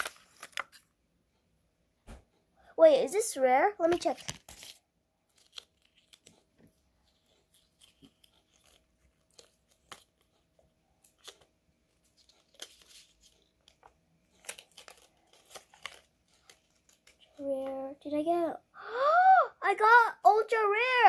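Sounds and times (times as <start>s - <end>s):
paper rustling and crinkling: 0.0s - 0.9s, 3.8s - 17.7s.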